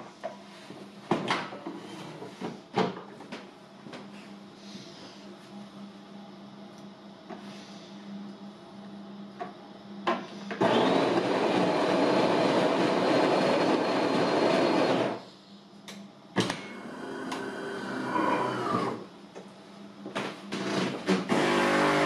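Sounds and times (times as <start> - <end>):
coffee grinder grinding beans: 10.6 - 15.2, 17.0 - 19.0, 21.2 - 22.0.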